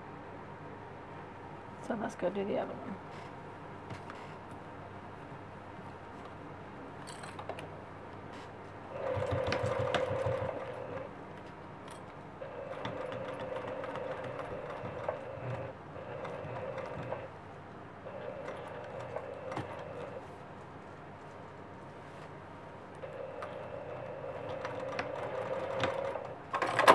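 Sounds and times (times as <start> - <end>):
sewing machine stitching: 8.9 - 11.1, 12.5 - 17.3, 23.0 - 26.9.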